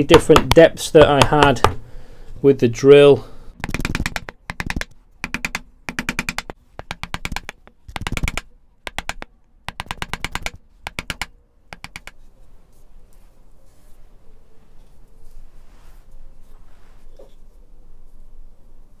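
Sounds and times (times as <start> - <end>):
gouge chattering on wood: 0.0 - 1.8, 3.6 - 12.2.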